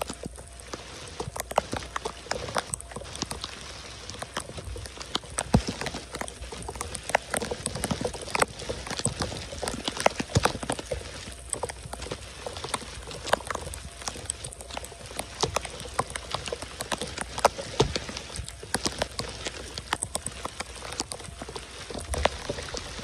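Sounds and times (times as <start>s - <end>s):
raindrops tapping close by: 0.0s - 23.0s
heavy rain on a flooded street: 11.5s - 23.0s.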